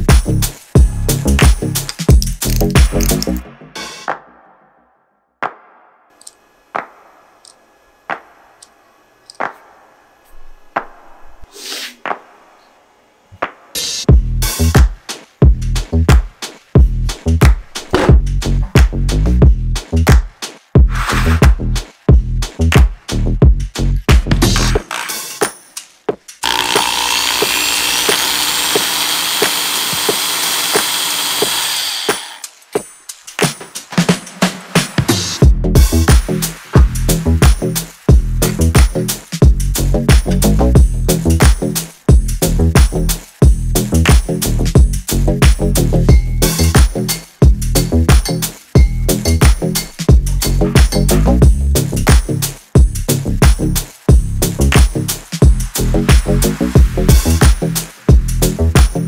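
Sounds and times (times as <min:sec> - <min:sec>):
electric drill whining: 0:26.4 - 0:32.5.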